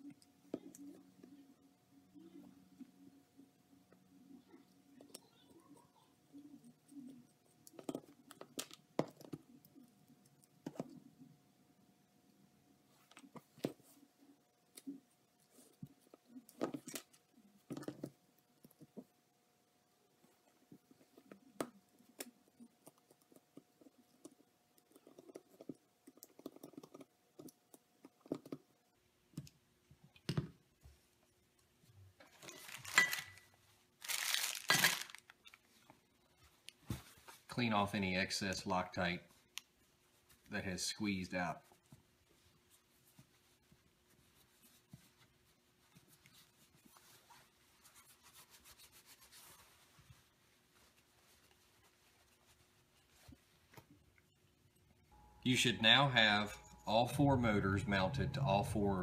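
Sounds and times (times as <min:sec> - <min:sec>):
faint steady hum: 0:00.0 - 0:59.0
cloth rubbing: 0:41.6 - 0:54.0.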